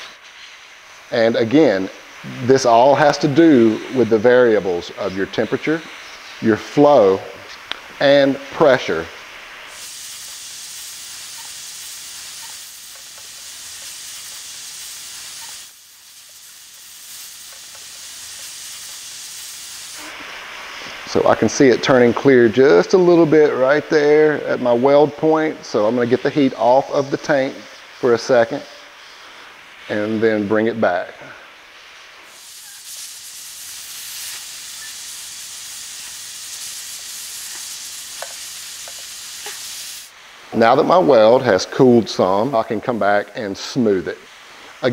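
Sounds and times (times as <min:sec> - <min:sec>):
hot gas hissing from nozzle: 0:00.0 - 0:44.9.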